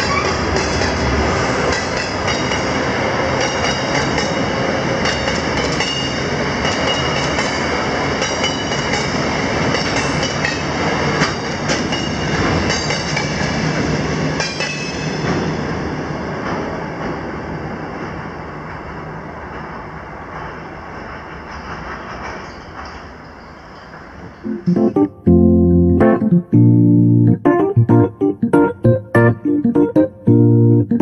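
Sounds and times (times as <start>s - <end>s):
train wheels clicking over rail joints: 0.0s - 15.7s, 16.4s - 24.4s.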